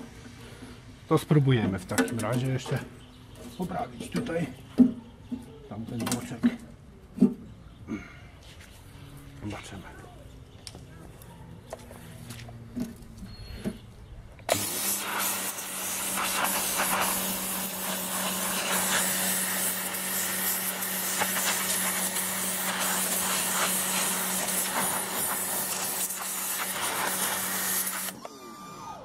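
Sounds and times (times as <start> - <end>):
water jet hissing on metal: 14.5 - 28.1
pressure washer motor hum: 14.5 - 29.0.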